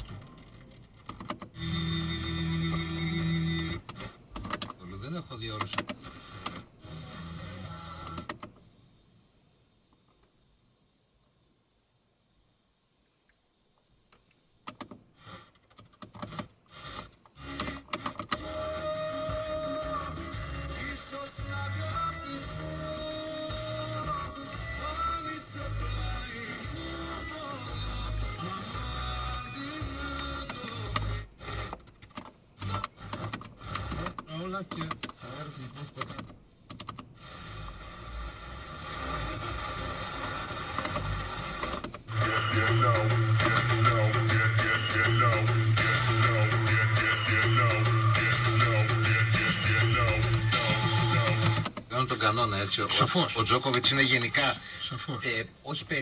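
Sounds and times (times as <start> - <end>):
radio station playing: 4.7 - 7.1, 18.3 - 31.7, 33.7 - 36.3, 37.2 - 56.0
radio static bursts: 32.6 - 36.3, 37.1 - 56.0.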